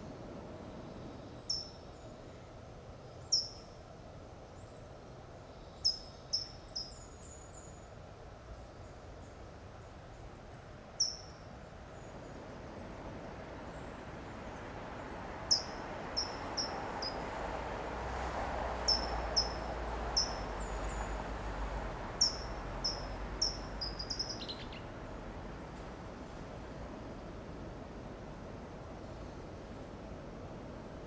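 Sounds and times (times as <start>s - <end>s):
bird sharp high calls: 22.2s - 24.8s.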